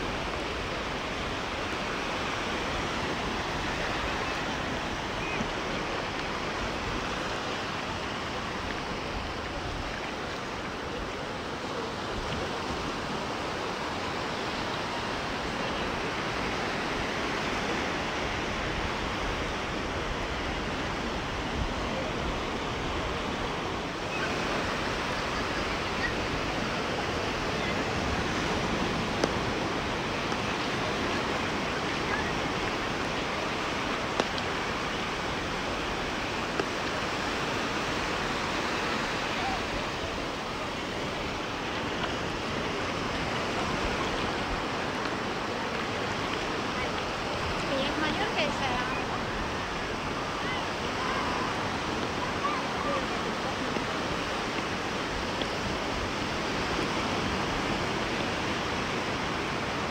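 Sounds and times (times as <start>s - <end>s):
waves washing onto beach: 0.0s - 59.9s.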